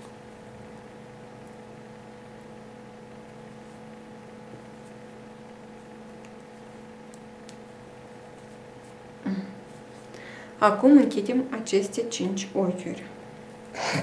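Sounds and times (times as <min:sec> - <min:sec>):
electrical hum with hiss: 0:00.0 - 0:14.0.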